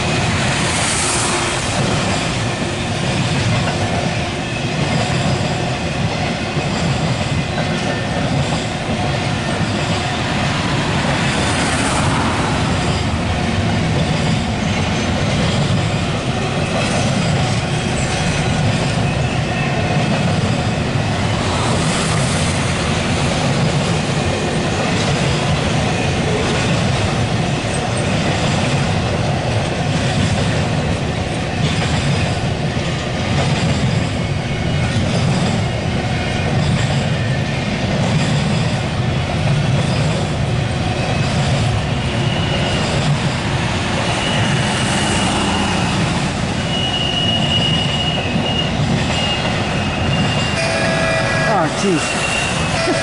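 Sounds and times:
train wheels rolling on rails: 0:00.0 - 0:53.0.

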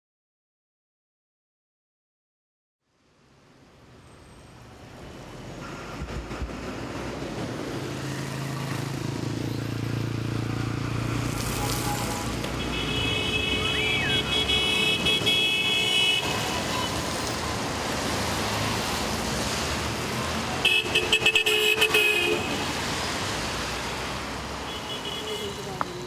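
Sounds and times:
traffic hum: 0:03.2 - 0:26.0
short horn beeps: 0:11.6 - 0:15.5
long car horn honk: 0:11.7 - 0:17.0, 0:20.6 - 0:22.6.

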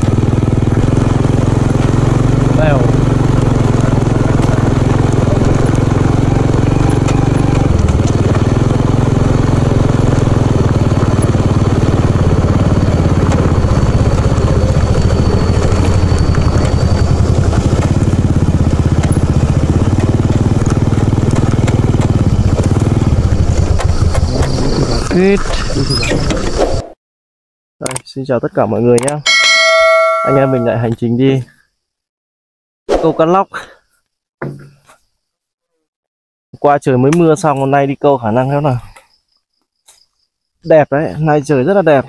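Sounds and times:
small motorbike engine running: 0:00.0 - 0:25.8.

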